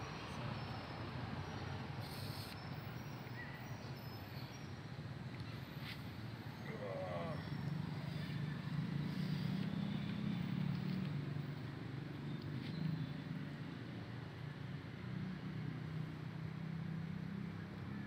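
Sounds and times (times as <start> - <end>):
vehicle engine hum: 0.0 - 18.0.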